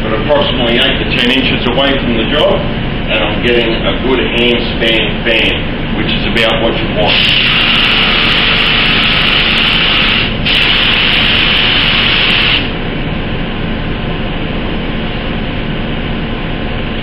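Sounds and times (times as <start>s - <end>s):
spray gun hissing: 7.1s - 12.7s.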